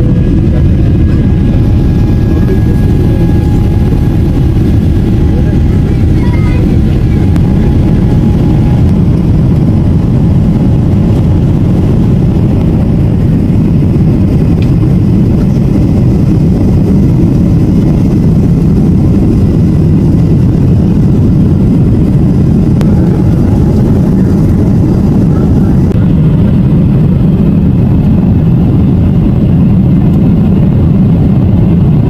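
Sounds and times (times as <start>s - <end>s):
jet engines rumbling: 0.0s - 32.0s.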